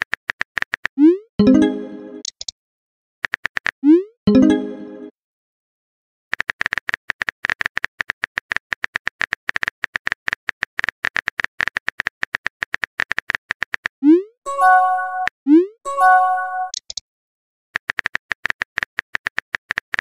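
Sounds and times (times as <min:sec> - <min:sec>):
smartphone keyboard clicks: 0:06.3 - 0:13.9, 0:16.7 - 0:17.0, 0:17.8 - 0:20.0.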